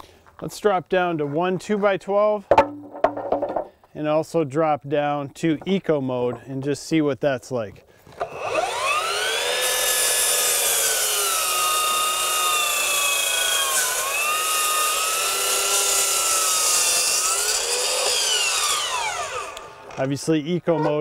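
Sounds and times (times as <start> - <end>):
miter saw whining and cutting wood: 8.1 - 20.0.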